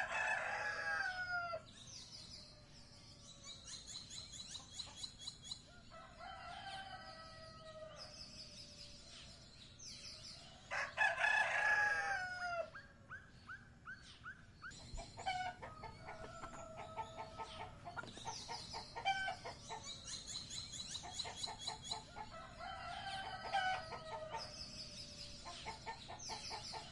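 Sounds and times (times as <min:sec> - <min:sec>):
rooster crowing: 0:00.0 - 0:01.6, 0:05.9 - 0:08.0, 0:10.7 - 0:12.8, 0:22.2 - 0:24.6
small birds chirping: 0:00.0 - 0:26.9
hens clucking: 0:15.0 - 0:19.9.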